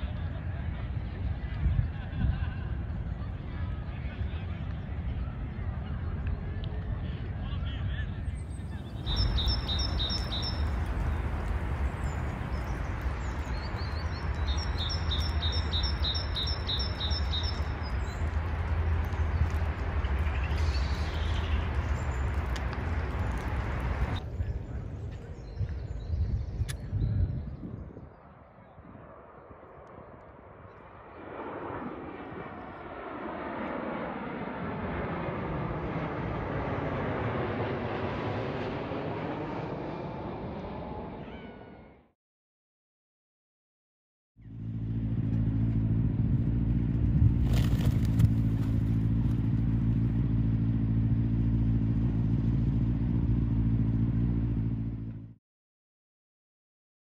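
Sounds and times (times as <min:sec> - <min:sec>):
jet airliner passing overhead: 0:00.0 - 0:42.1
songbird singing high notes: 0:08.8 - 0:11.2, 0:11.9 - 0:18.2.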